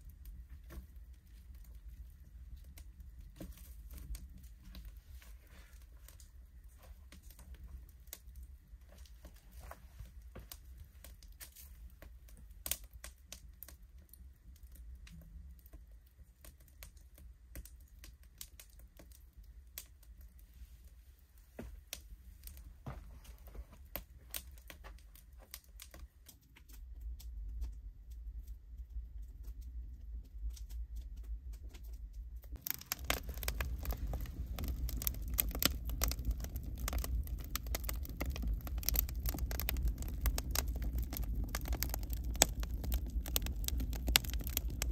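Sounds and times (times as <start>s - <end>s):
crackling and clicking: 23.8s - 44.9s
low rumble: 27.2s - 44.9s.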